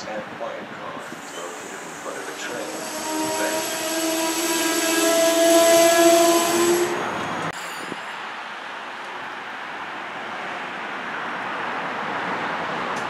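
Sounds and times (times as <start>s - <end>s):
train noise: 0.0s - 13.0s
train horn chord: 1.3s - 7.5s.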